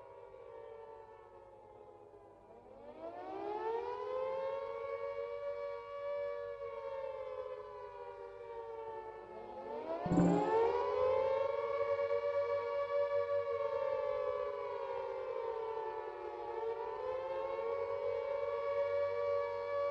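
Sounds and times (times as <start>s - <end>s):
civil defence siren wailing: 3.3s - 9.5s, 11.6s - 19.9s.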